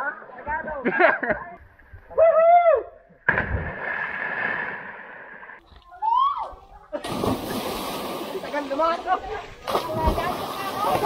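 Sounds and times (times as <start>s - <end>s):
water splashing and rushing: 7.0s - 11.0s.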